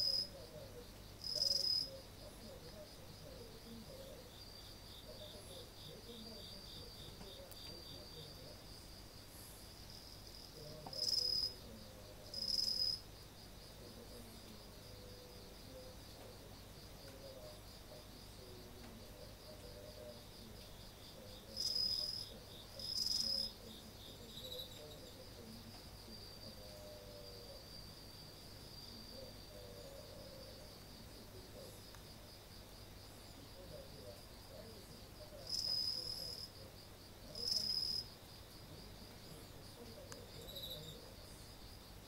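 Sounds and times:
insect pulsed trill: 0.0 - 9.0, 9.8 - 16.2, 39.2 - 42.0
louder insect chirps: 40.4 - 41.7.

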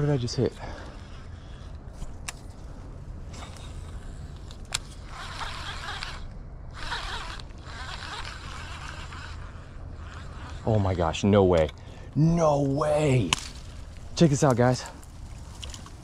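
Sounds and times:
fishing reel cranking: 0.0 - 1.8, 3.4 - 11.4
steady low rumble: 0.0 - 16.0.

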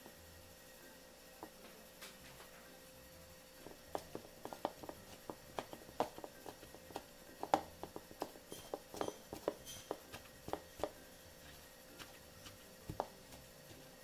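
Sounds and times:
spatula tapping against bowl: 3.9 - 11.0.

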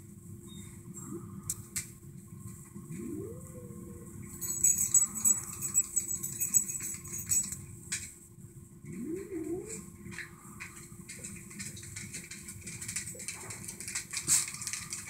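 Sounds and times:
dog whining: 2.9 - 6.8, 8.9 - 9.9.

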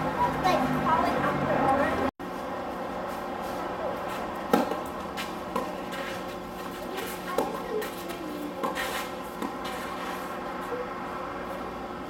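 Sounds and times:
racket hitting tennis ball: 4.4 - 10.3
ball bouncing: 7.0 - 9.7.

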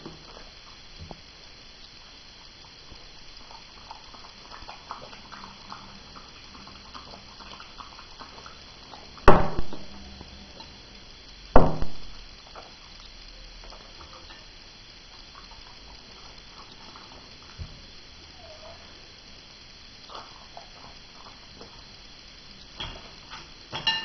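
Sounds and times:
dog lapping from a mug: 2.8 - 10.8.

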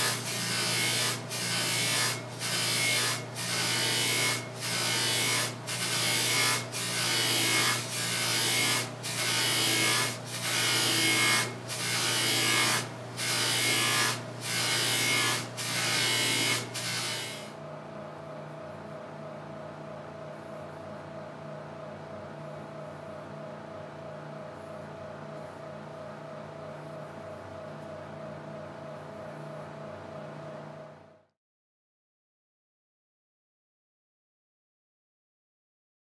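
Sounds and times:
metal grinding on sanding belt: 0.0 - 17.4.

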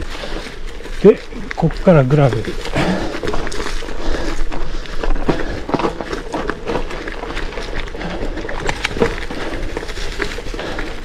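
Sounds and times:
bike rattling: 0.0 - 11.0
bike tyres crunching on gravel: 0.0 - 11.0
stones clicking and knocking: 2.2 - 11.0.

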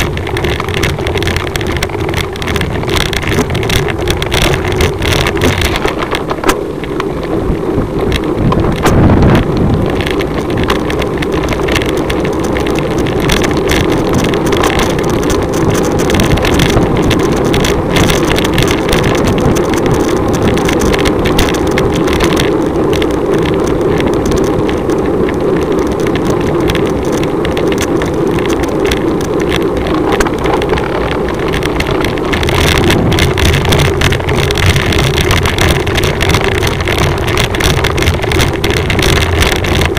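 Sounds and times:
wind rushing over microphone: 0.0 - 39.9.

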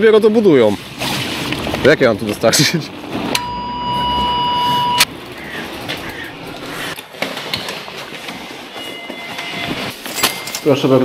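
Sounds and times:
electronic beep tone: 3.4 - 5.1.

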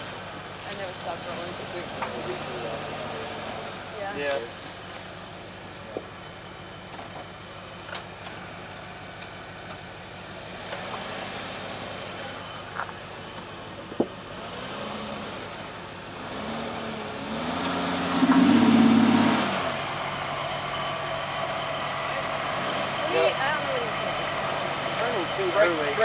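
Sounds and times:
car engine revving under load: 13.9 - 26.0.

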